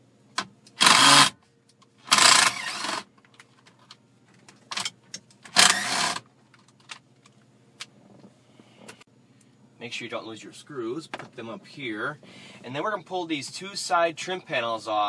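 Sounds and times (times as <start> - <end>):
cordless driver whirring: 0.7 - 1.4, 2.1 - 3.1, 5.5 - 6.2.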